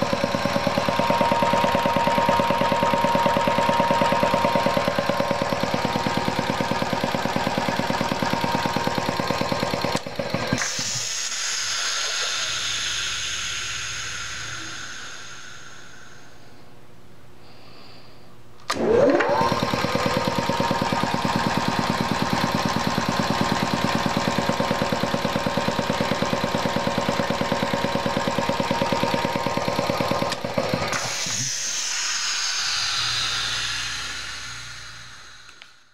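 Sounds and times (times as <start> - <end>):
air compressor pumping: 0.0 - 16.5, 18.7 - 35.9
hiss of air: 10.5 - 16.8, 25.8 - 35.9.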